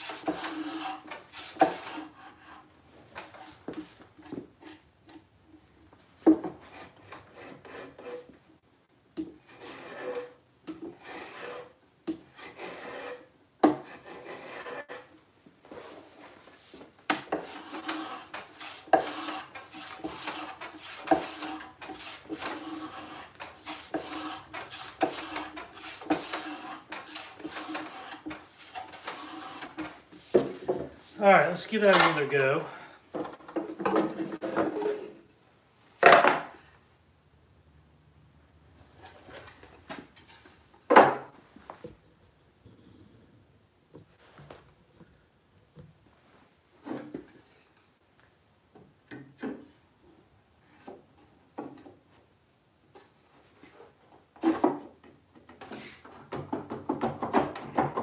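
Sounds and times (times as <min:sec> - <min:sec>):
hand plane rasping on wood: 0:00.0 - 0:02.7, 0:06.7 - 0:08.3, 0:09.4 - 0:10.4, 0:11.0 - 0:11.7, 0:12.3 - 0:15.1, 0:17.3 - 0:31.2.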